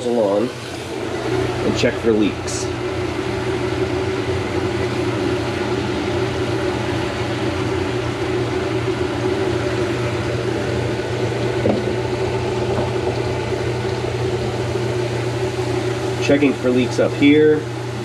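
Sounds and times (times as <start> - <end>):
garbage disposal motor humming: 0.0 - 18.0
water draining: 11.0 - 14.7.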